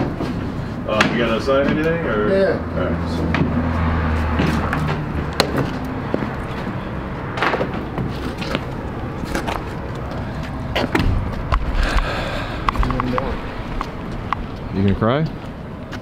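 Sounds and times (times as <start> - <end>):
steady low rumble: 2.8 - 16.0.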